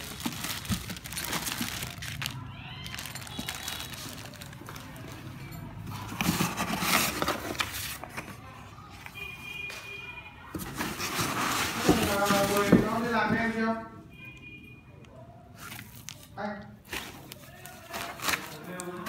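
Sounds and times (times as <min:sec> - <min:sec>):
plastic bags crinkling: 0:00.0 - 0:08.0, 0:10.9 - 0:13.2, 0:15.6 - 0:19.0
cardboard and paper rustling: 0:00.0 - 0:09.1, 0:10.5 - 0:13.6, 0:15.6 - 0:19.0.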